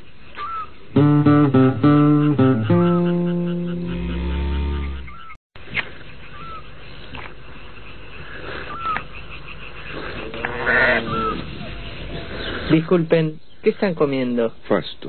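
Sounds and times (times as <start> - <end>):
bird chirp: 0.0 - 14.4
sheep bleating: 10.3 - 11.4.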